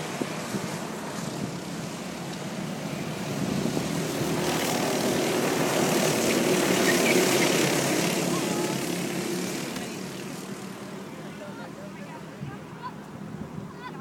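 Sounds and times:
go-kart engines buzzing: 0.0s - 14.0s.

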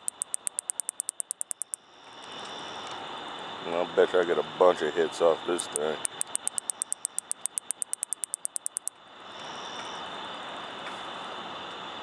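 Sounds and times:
katydid ticking: 0.0s - 1.8s, 5.7s - 8.9s.

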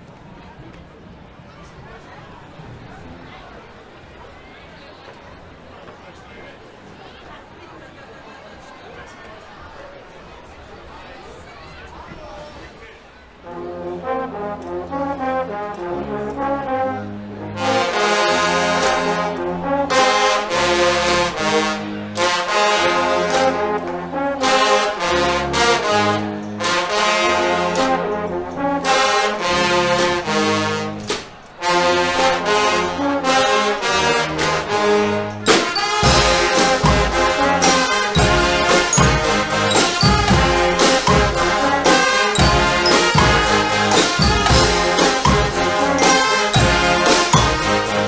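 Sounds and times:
brass band playing: 13.4s - 48.0s
drum hits: 35.5s - 48.0s.

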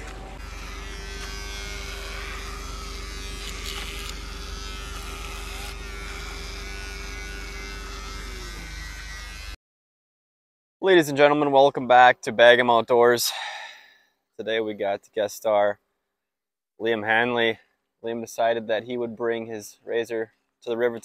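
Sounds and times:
electric razor buzzing: 0.0s - 9.6s.

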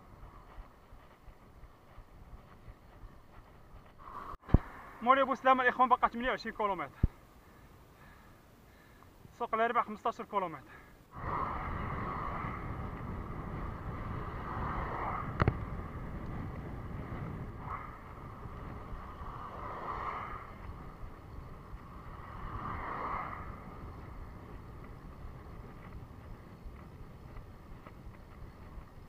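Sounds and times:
wind on microphone: 0.0s - 5.0s, 11.1s - 29.0s
bike road noise on asphalt: 0.0s - 29.0s.

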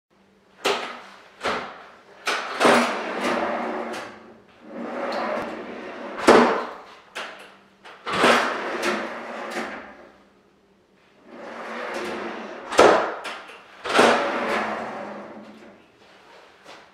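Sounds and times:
drawers clunking shut: 0.8s - 4.2s, 4.9s - 6.8s, 11.7s - 15.7s.

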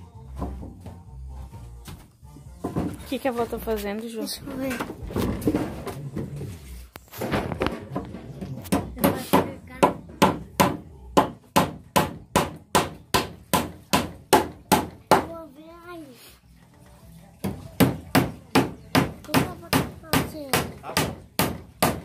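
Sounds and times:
hammer striking wood: 8.7s - 15.4s, 17.4s - 22.0s.

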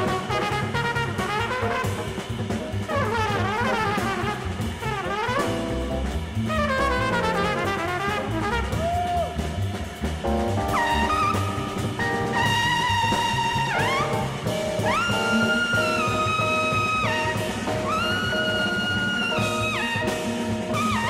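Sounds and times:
bass: 0.0s - 21.0s
drums: 0.0s - 21.0s
jazz trumpet solo: 0.0s - 21.0s.

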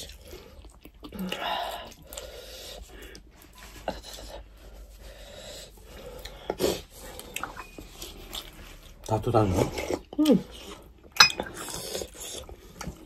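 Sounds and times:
chewing: 0.0s - 13.0s.

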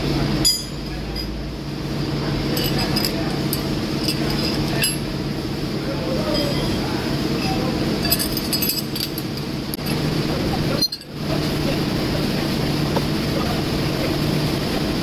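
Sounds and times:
workshop machinery humming: 0.0s - 15.0s
light metallic clinks: 2.5s - 5.1s, 7.4s - 9.4s.

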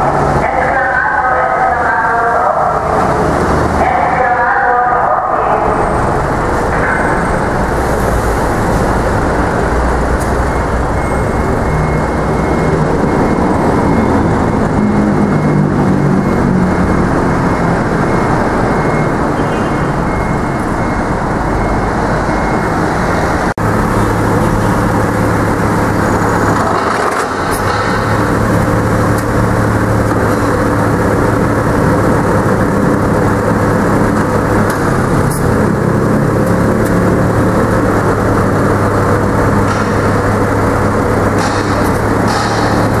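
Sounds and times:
truck engine running: 0.0s - 43.0s
low engine hum: 20.0s - 43.0s.

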